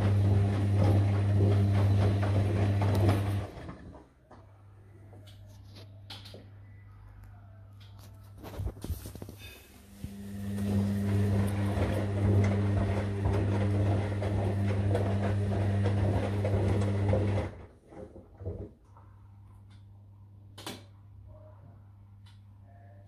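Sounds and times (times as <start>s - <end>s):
washing machine motor humming: 0.0s - 4.0s, 9.8s - 18.6s.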